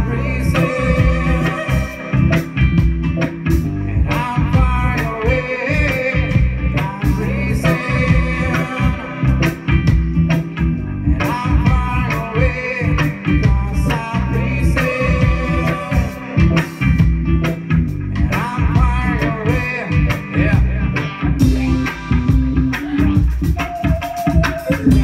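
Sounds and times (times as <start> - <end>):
woman singing lead vocal: 0.0 - 2.5, 3.9 - 9.5, 11.1 - 16.6, 22.8 - 25.0
live reggae band playing: 0.0 - 25.0.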